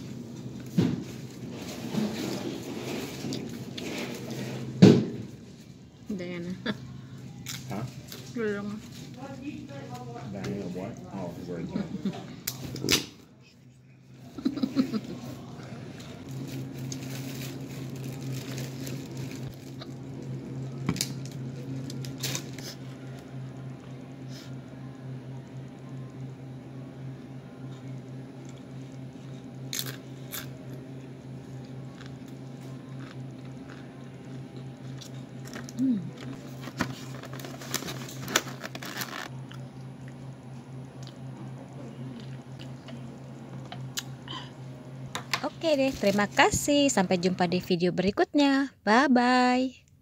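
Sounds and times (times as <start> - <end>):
low hum: 0.0 - 48.9.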